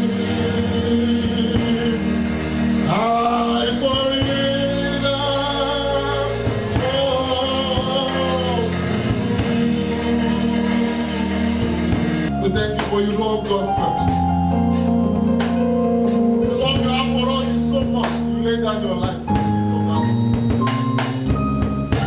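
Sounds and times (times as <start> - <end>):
man singing into a microphone: 0.0 - 2.2, 2.8 - 10.5, 12.3 - 14.4
instrumental accompaniment: 0.0 - 22.0.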